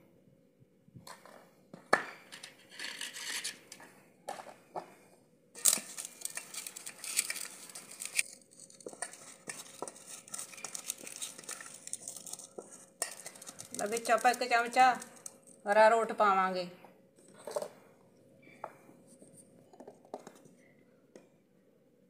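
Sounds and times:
hands squishing food mixture: 0:05.6 - 0:15.4.

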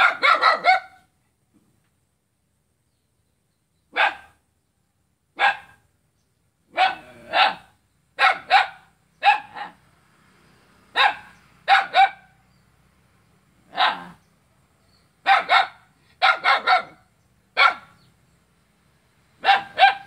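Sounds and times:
small dog barking: 0:00.0 - 0:01.1, 0:03.9 - 0:04.4, 0:05.4 - 0:05.8, 0:06.7 - 0:09.8, 0:10.9 - 0:12.4, 0:13.7 - 0:14.2, 0:15.2 - 0:18.0, 0:19.4 - 0:20.0.

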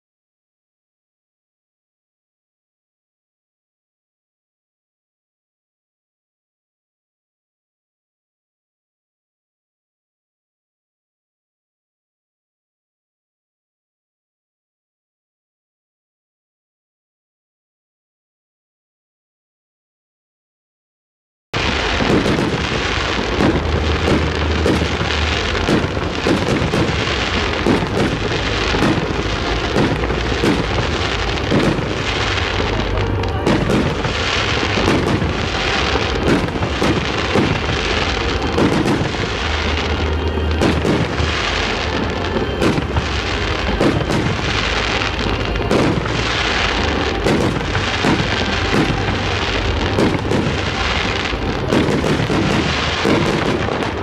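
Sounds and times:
fireworks bursting and crackling: 0:21.6 - 0:54.0.

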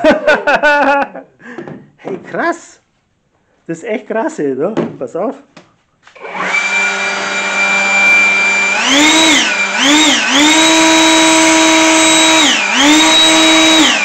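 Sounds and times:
leaf blower whining: 0:06.1 - 0:14.0.

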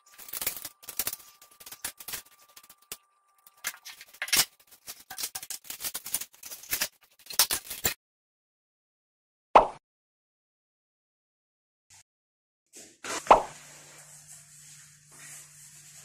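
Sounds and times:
kitchen utensils clinking: 0:00.1 - 0:08.0.

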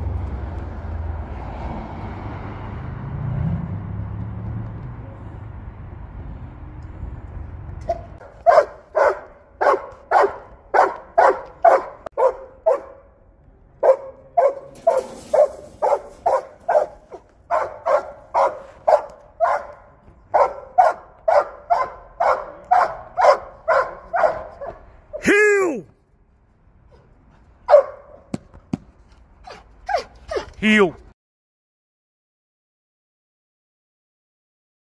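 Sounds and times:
dog barking: 0:07.9 - 0:13.1, 0:13.8 - 0:24.9, 0:27.7 - 0:28.2, 0:29.5 - 0:30.5.

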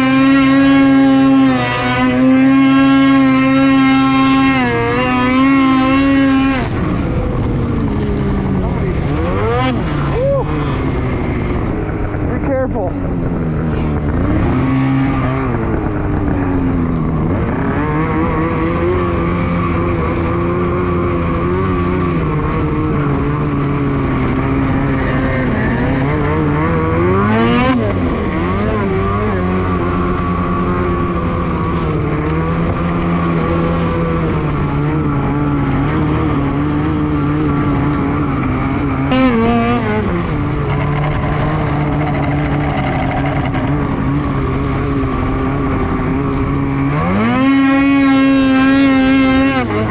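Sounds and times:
snowmobile engine revving: 0:00.0 - 0:49.9.

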